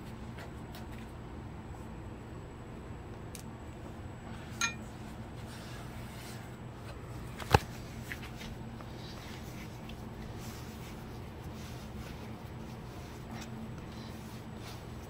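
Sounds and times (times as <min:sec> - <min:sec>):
steady low hum: 0:00.0 - 0:15.0
glass pan clinking: 0:04.6 - 0:04.8.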